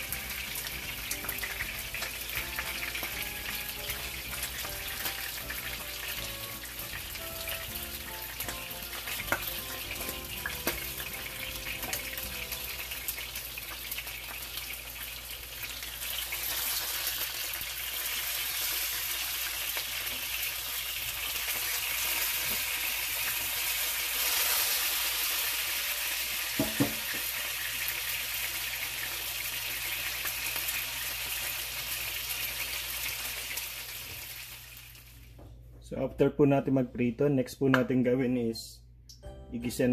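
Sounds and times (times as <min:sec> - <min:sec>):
fish sizzling in hot oil: 0:00.0 - 0:35.2.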